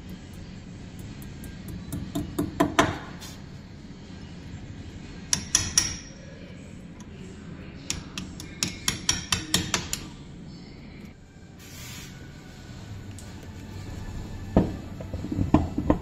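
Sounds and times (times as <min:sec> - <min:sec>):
hammer tapping steel punch: 0:05.3 - 0:06.1, 0:07.9 - 0:10.1.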